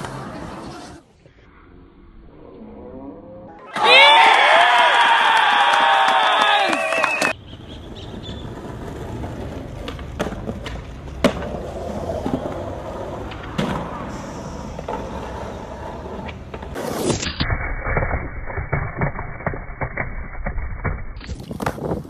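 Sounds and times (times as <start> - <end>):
crowd cheering and shouting: 3.6 - 7.4
traffic rumble: 7.3 - 16.8
skateboard sliding on concrete: 7.9 - 22.0
skateboard clacks: 8.2 - 14.0.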